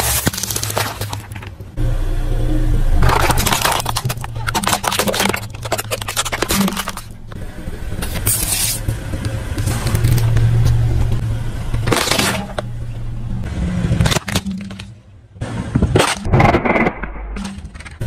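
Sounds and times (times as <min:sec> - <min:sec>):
car engine running: 0:01.7 - 0:14.4.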